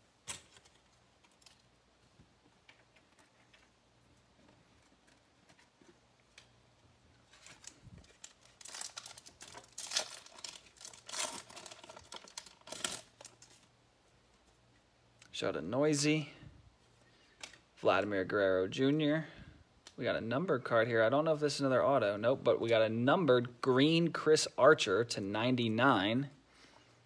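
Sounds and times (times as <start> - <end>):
foil wrapper tearing and crinkling: 7.2 - 13.7.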